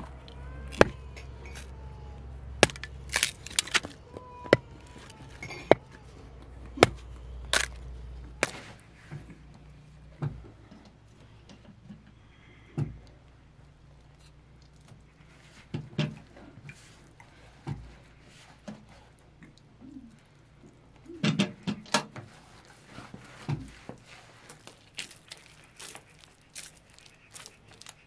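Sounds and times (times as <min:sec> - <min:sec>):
hatchet splitting wood: 0:00.6 - 0:01.7, 0:02.6 - 0:05.1, 0:06.8 - 0:07.8.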